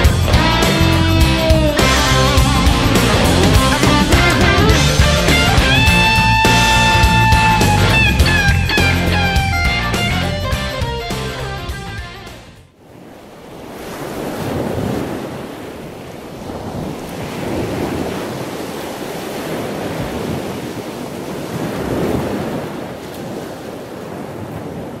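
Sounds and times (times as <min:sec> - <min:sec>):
surf breaking on beach: 0:12.7 - 0:25.0
wind buffeting microphone: 0:13.1 - 0:25.0.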